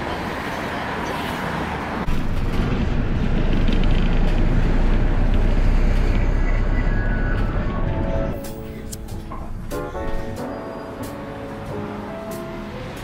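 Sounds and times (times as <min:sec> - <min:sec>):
car engines and tyres on road: 0:00.0 - 0:13.0
heavy low rumble: 0:02.1 - 0:10.4.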